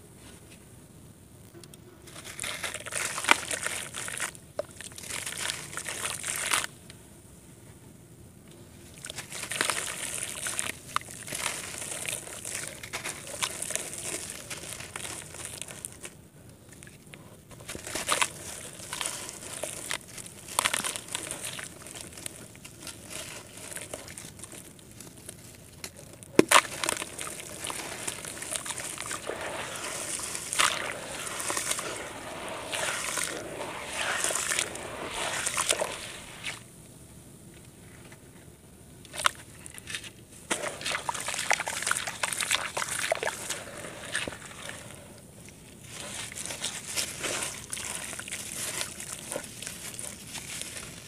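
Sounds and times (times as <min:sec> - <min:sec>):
hands crumbling wet dirt: 0:02.1 - 0:06.7, 0:08.9 - 0:36.6, 0:39.1 - 0:51.0
muddy water splashing and sloshing: 0:17.8 - 0:24.6, 0:26.4 - 0:36.6, 0:40.5 - 0:45.1, 0:45.8 - 0:51.0.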